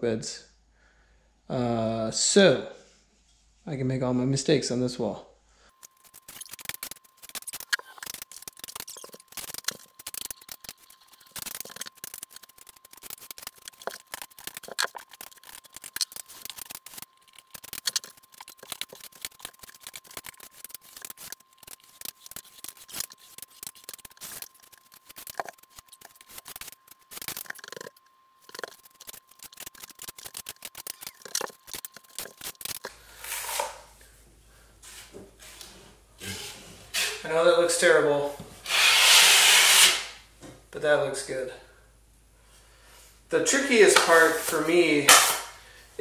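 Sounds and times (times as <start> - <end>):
taping knife scraping drywall: 38.6 - 40.2.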